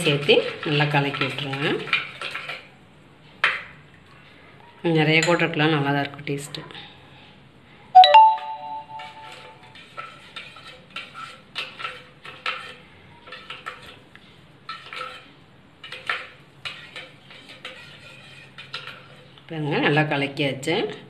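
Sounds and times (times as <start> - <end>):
spoon stirring in steel tumbler: 0.0 - 2.7, 8.9 - 19.4.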